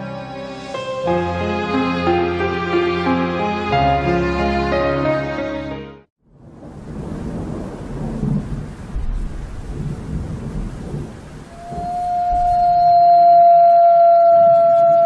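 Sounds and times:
rain: 0:06.3 - 0:15.0
thunder: 0:06.4 - 0:15.0
wolf howling: 0:11.5 - 0:15.0.

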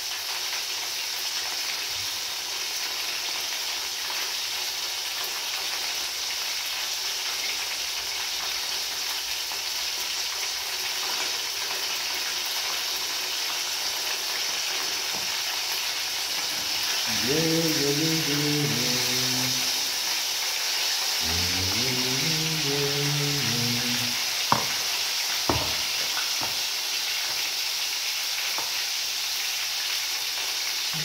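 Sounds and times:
oil sizzling in frying pan: 0:00.0 - 0:31.0
low voice humming: 0:16.5 - 0:20.1, 0:21.2 - 0:24.7.

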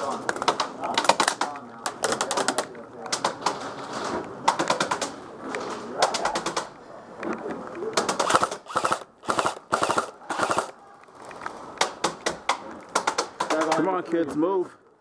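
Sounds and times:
airsoft rifle bursts: 0:08.1 - 0:10.8.

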